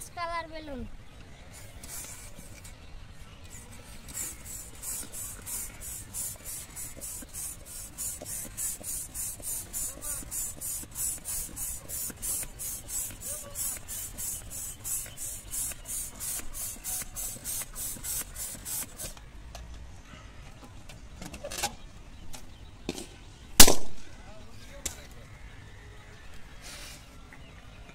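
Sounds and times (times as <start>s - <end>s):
balloon pump hissing: 1.5s - 2.8s, 3.4s - 19.2s.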